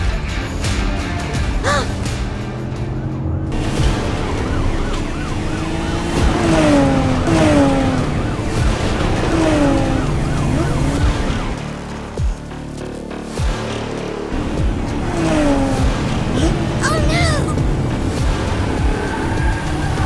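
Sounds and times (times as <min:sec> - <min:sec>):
car engine running: 0:00.0 - 0:20.0
police siren wailing: 0:03.5 - 0:11.7.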